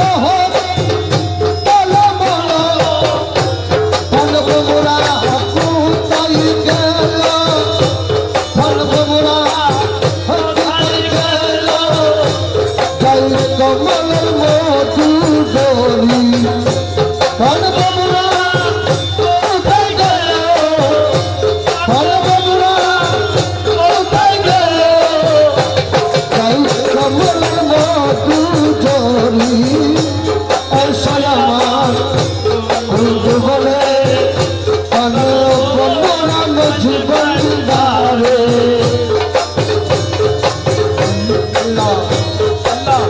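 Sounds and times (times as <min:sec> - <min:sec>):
fast rattling percussion: 0:00.0 - 0:43.0
person singing devotional song: 0:00.0 - 0:43.0.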